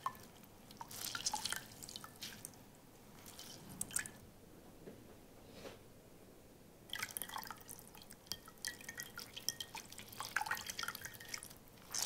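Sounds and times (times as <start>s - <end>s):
water dripping into bowl: 6.9s - 12.0s.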